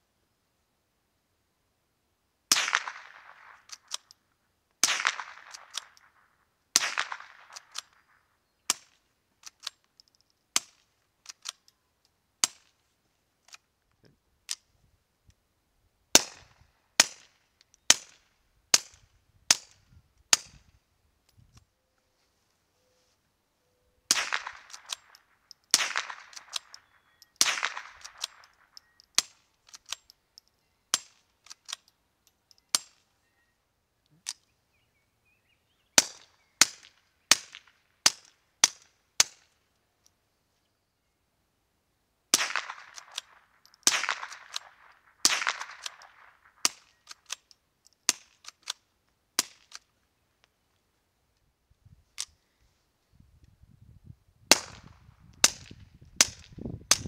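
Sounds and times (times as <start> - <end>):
suppressed gunshots: 2.5 - 4.1, 4.8 - 8.1, 16.1 - 17.3, 24.1 - 28.6, 42.3 - 46.9, 54.5 - 57.0
gun action clicks: 2.7 - 6.2, 6.8 - 12.8, 24.1 - 33.0, 42.5 - 49.9.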